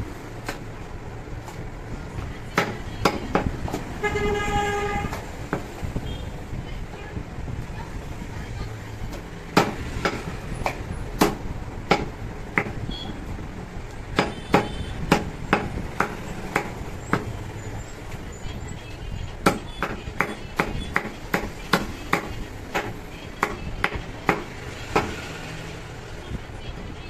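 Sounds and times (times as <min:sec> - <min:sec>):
cleaver chopping ribs on wood: 0:02.6 - 0:03.9, 0:09.1 - 0:12.8, 0:14.1 - 0:17.4, 0:19.4 - 0:25.3.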